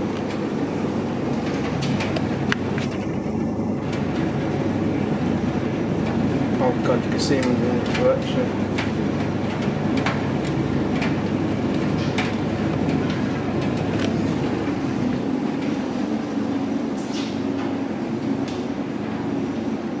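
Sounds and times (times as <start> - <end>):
washing machine drums humming: 0.0 - 20.0
tumbling load clicks and knocks: 1.3 - 4.7, 5.7 - 15.7.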